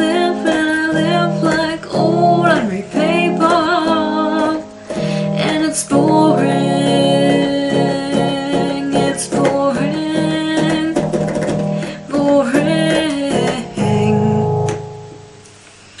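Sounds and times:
organ keys clicking: 0.0 - 14.9.

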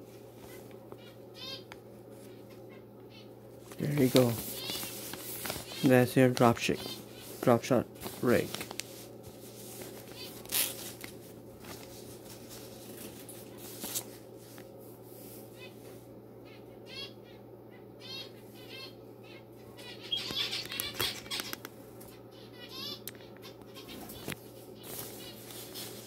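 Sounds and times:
low steady hum: 0.0 - 26.0
small bird chirping: 18.0 - 21.6.

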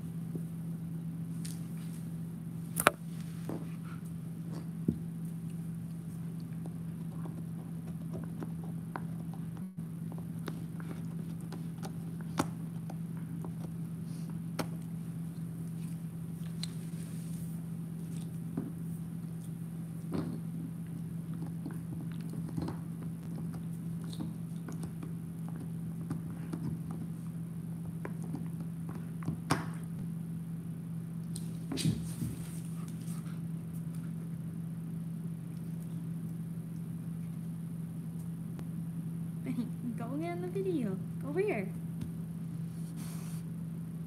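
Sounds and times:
dog gnawing on a chew: 4.4 - 13.9, 19.1 - 29.5.

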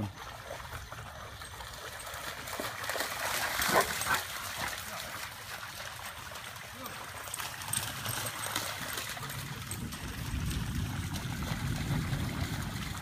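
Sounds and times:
dogs splashing in water: 0.0 - 13.0
dog barking: 3.7 - 4.2.

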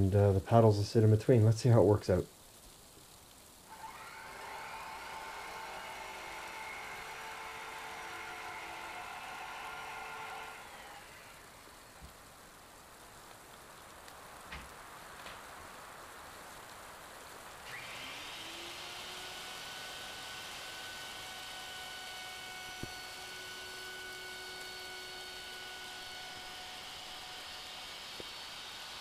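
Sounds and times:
steady hiss: 0.0 - 29.0
power tool motor whining: 3.7 - 12.2, 17.7 - 29.0.

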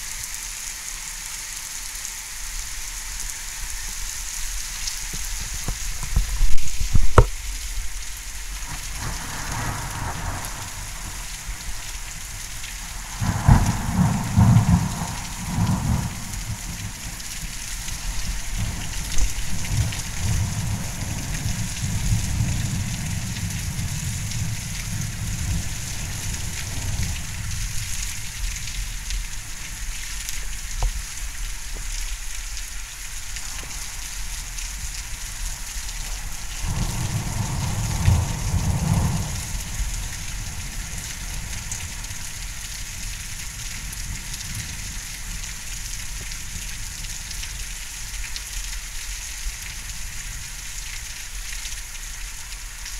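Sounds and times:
heavy rain hissing: 0.0 - 52.9
thunder rumbling: 8.7 - 29.1, 36.0 - 42.2.

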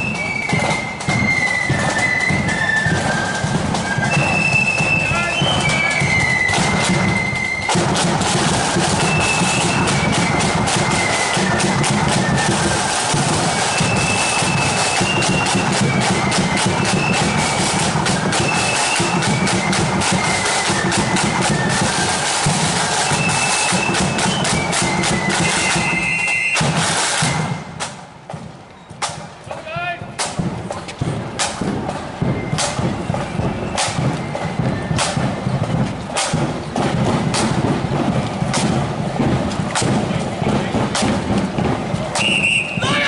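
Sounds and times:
flute melody: 0.0 - 28.0, 31.6 - 36.8, 40.5 - 43.0
side drums: 0.0 - 43.0
bass drum beat: 29.5 - 42.2.

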